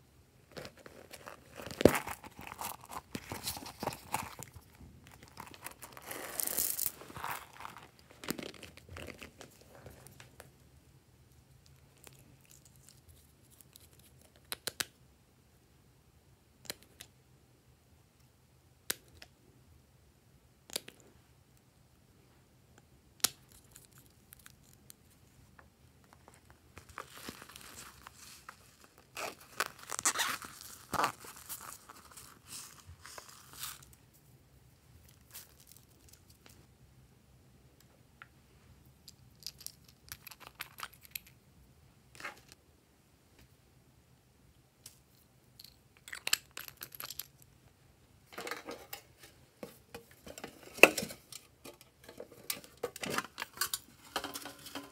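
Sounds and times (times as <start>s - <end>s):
crinkling shiny strips: 0.6s - 10.2s.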